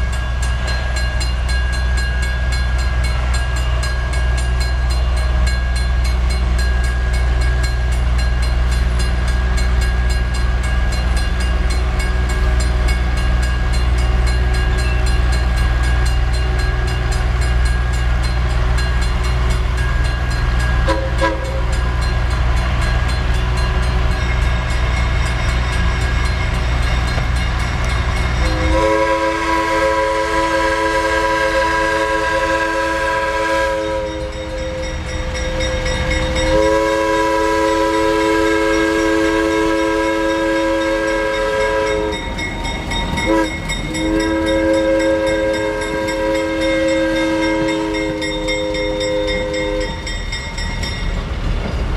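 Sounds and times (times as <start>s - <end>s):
diesel locomotive rumbling: 0.0s - 51.9s
locomotive air horn: 20.7s - 22.0s, 28.4s - 42.4s, 43.2s - 50.1s.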